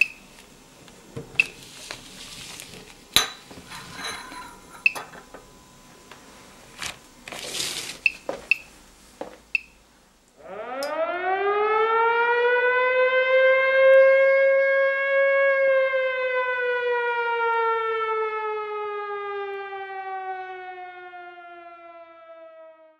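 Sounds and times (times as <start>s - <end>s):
siren wailing: 10.4s - 22.9s.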